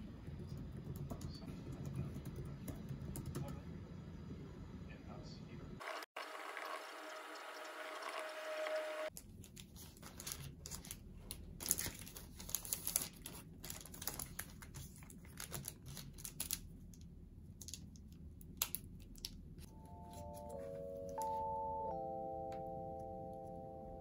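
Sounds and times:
laptop keyboard typing: 0.4s - 3.5s
paper and plastic crinkling: 9.1s - 16.8s.

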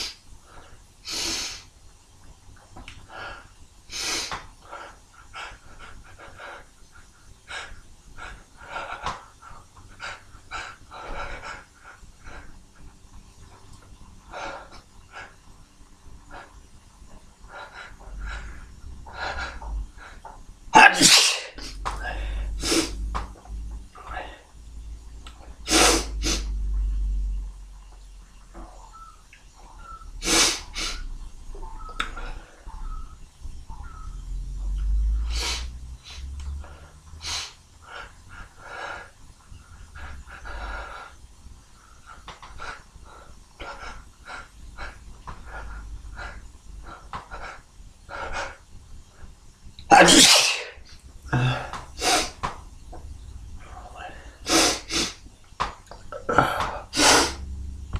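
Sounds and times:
person sneezing loudly: 20.8s - 21.8s, 49.9s - 52.4s
man sniffing sharply: 25.7s - 26.6s, 30.2s - 31.0s, 35.2s - 36.2s, 52.0s - 52.4s, 54.4s - 55.2s, 56.9s - 57.4s.

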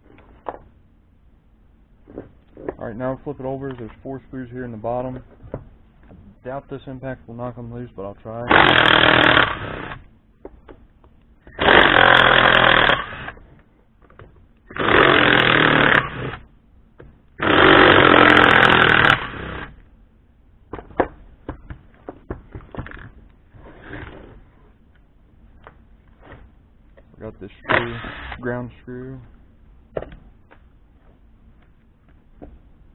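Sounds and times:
impact driver hammering: 27.7s - 28.4s.

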